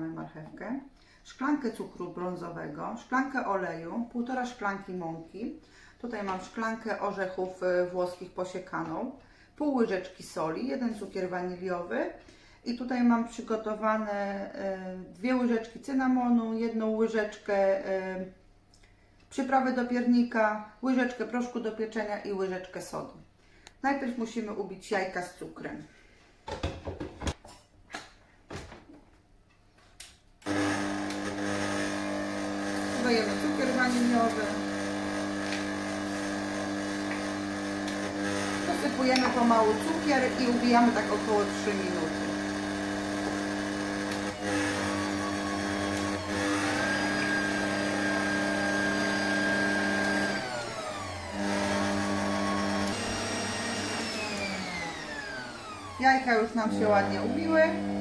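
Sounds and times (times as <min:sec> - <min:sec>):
stand mixer motor humming: 0:30.4 - 0:58.0.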